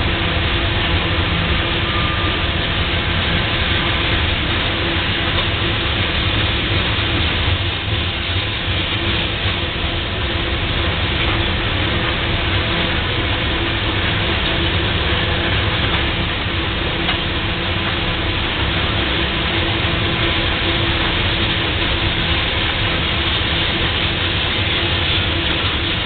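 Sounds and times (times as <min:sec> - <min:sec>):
train wheels rumbling on rails: 0:00.0 - 0:26.0.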